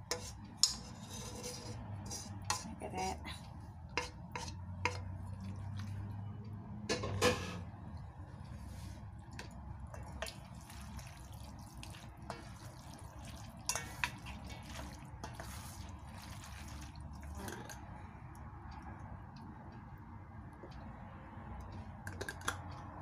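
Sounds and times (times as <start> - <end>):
noodles being mixed: 0.0 - 6.4, 8.2 - 18.0.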